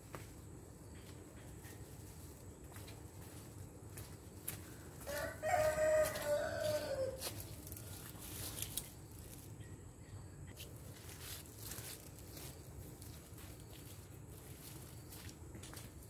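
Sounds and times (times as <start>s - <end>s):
rooster crowing: 5.0s - 7.5s.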